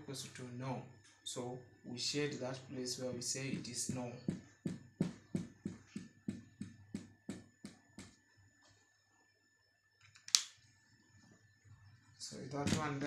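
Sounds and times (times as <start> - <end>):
marker pen hatching on whiteboard: 3.6 - 8.2.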